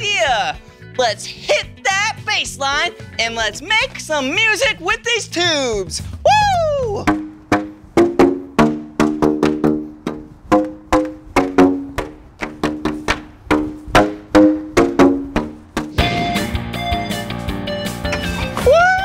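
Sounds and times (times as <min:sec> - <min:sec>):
plastic pipes slapped with sandals: 0:07.0 - 0:16.0.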